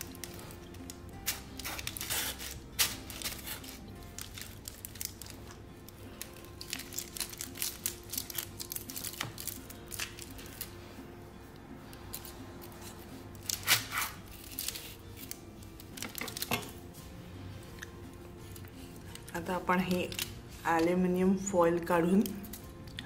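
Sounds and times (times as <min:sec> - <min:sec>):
foil crinkling: 0:00.0 - 0:10.8, 0:12.1 - 0:16.8, 0:18.4 - 0:20.9
soft background music: 0:00.0 - 0:23.0.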